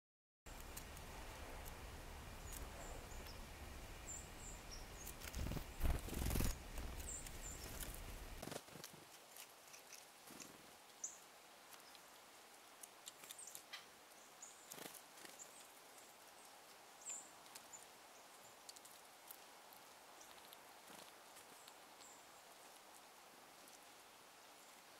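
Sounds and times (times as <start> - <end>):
small birds chirping: 0.5 - 8.8, 9.6 - 24.9
small clicks and rustles: 5.0 - 11.0, 11.6 - 13.9, 14.5 - 24.0.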